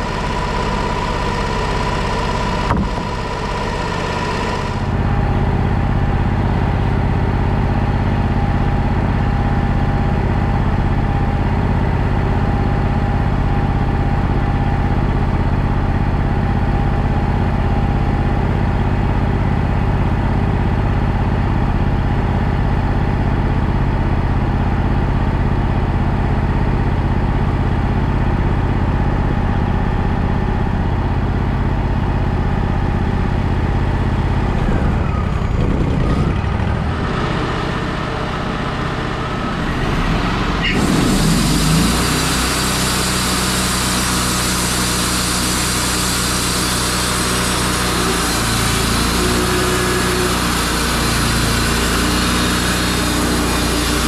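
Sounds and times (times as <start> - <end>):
sawmill engine running: 0.0 - 54.0.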